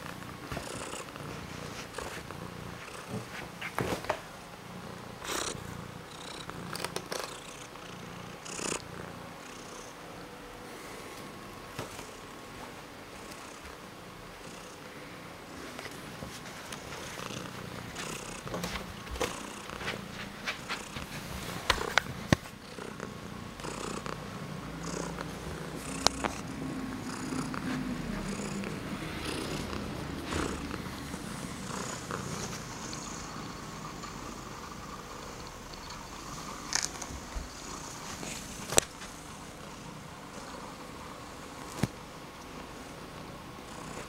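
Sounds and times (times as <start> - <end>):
cat purring: 0.0 - 10.0, 15.6 - 44.0.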